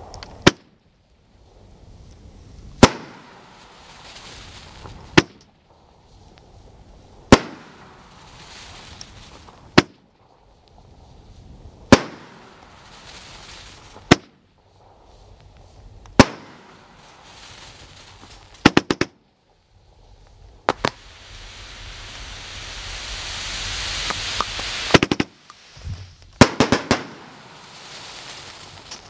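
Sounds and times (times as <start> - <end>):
firework cracks: 0.0 - 0.8, 1.9 - 29.0
firework hiss: 0.0 - 29.0
firework shells bursting: 2.8 - 5.9, 7.3 - 10.4, 11.9 - 19.2, 20.6 - 29.0.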